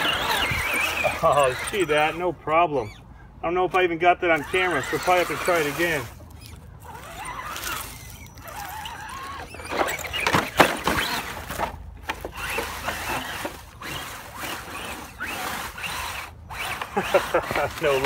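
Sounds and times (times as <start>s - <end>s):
toy truck motor whining: 0.0s - 18.0s
clatter of truck tumbling: 5.3s - 15.8s.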